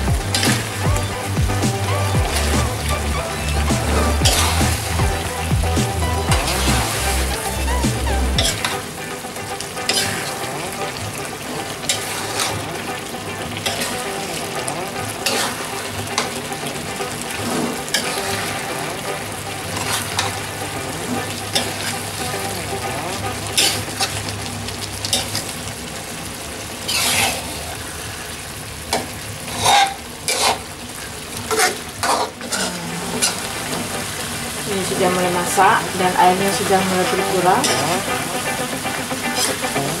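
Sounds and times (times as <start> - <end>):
sauce sizzling in a wok: 0.0 - 40.0
metal spoon scraping pan: 29.5 - 30.6.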